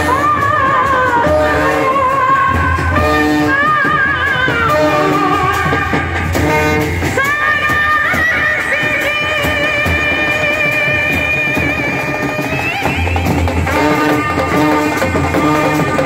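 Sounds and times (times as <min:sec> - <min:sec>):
brass band playing loudly: 0:00.0 - 0:08.2, 0:13.2 - 0:16.0.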